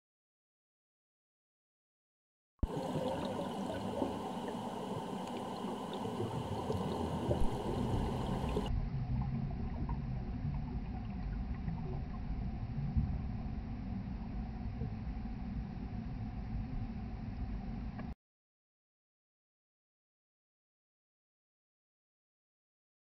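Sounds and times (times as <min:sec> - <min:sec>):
faint crackles and clicks: 0:02.6 - 0:12.2
underwater hiss and rumble: 0:02.6 - 0:18.1.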